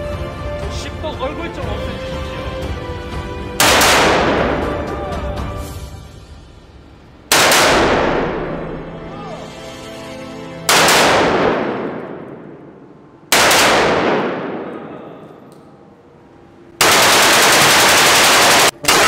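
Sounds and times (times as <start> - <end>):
rapid string of rifle shots: 3.6 - 4.7, 7.3 - 8.6, 10.7 - 12.5, 13.3 - 14.7, 16.8 - 19.0
rifle shots echoing indoors: 3.6 - 4.8, 7.3 - 8.8, 10.7 - 15.6, 16.8 - 19.0.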